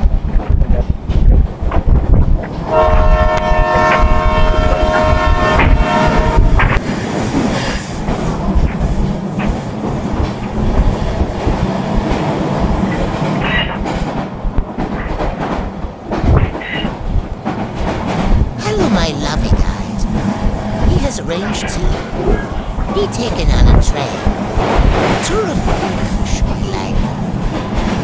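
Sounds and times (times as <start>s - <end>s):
train rumble and wheel clatter: 0.0s - 28.0s
train horn blast: 2.6s - 6.8s.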